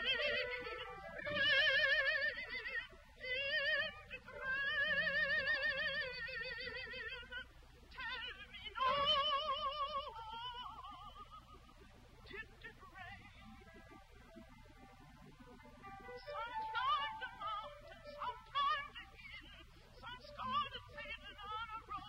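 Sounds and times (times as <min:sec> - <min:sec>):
woman singing with vibrato: 0:00.0 - 0:11.6, 0:12.3 - 0:13.7, 0:16.1 - 0:22.0.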